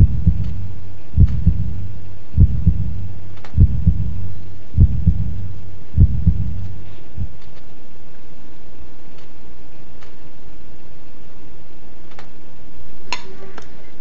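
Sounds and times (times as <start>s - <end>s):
heartbeat double thumps: 0.0s - 7.6s
steady low hum: 0.0s - 14.0s.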